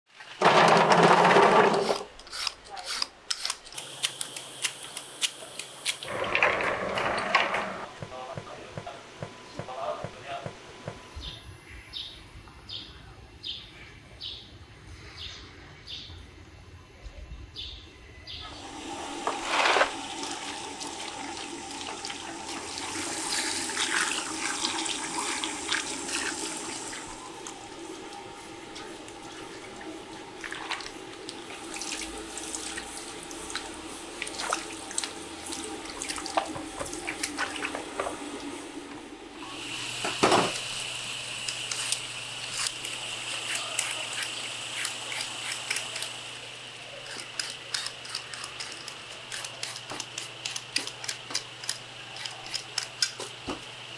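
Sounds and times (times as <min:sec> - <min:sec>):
water running from a hose: 0:18.5 - 0:50.6.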